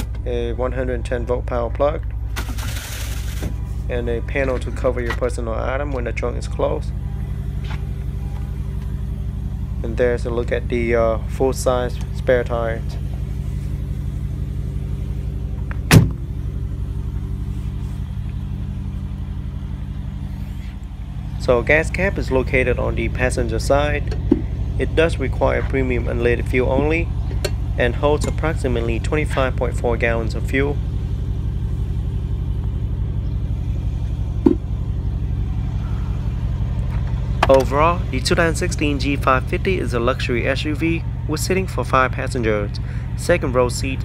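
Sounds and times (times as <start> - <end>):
engine idling: 0.0 - 44.0
low vehicle rumble: 0.0 - 44.0
car door slammed shut: 15.9 - 16.3.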